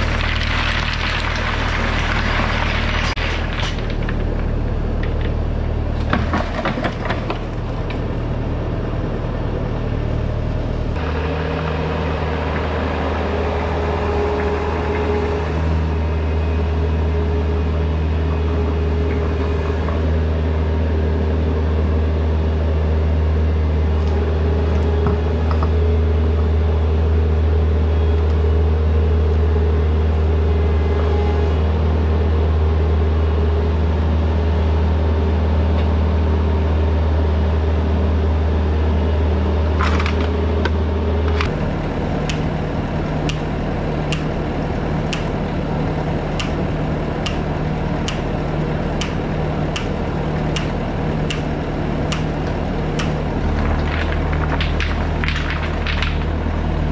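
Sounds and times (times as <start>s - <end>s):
diesel engine running: 0.0s - 56.9s
steady whine: 1.4s - 21.6s.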